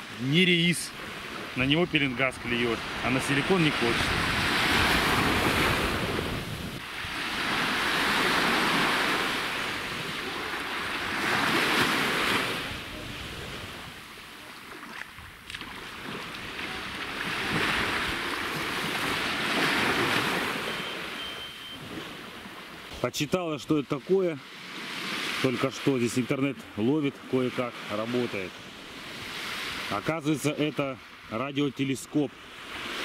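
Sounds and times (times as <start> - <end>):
small waves breaking on beach: 0.0 - 33.0
wind on microphone: 1.8 - 14.2, 15.1 - 20.7.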